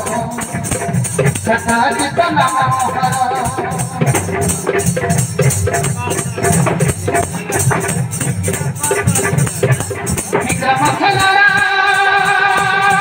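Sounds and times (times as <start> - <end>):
drums: 0.0 - 13.0
person singing: 10.4 - 13.0.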